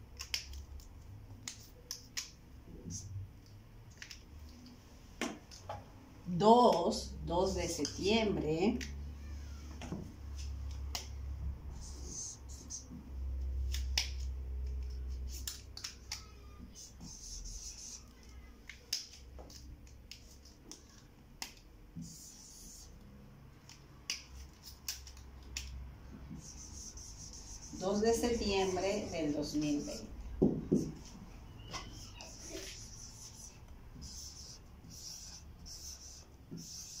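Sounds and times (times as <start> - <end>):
markers clicking together: 0.0 - 2.4, 13.5 - 16.9, 18.6 - 22.8, 23.6 - 25.8
marker writing on whiteboard: 9.8 - 37.0.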